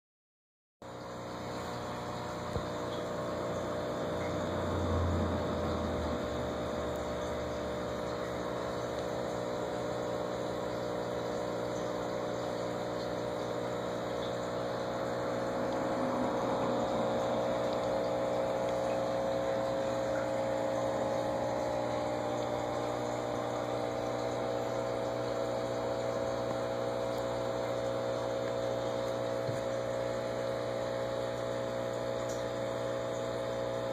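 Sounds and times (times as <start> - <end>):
aquarium pump humming: 0.8 - 33.9
gentle bubbling water: 1.0 - 33.9.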